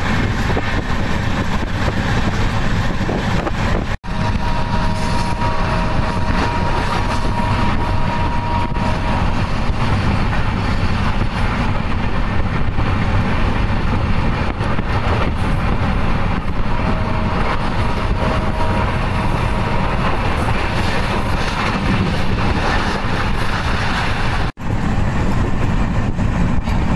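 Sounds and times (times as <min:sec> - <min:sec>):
train wheels rumbling on rails: 0:00.0 - 0:26.9
wind noise: 0:00.0 - 0:26.9
two-note train horn: 0:04.0 - 0:09.8, 0:16.6 - 0:20.2.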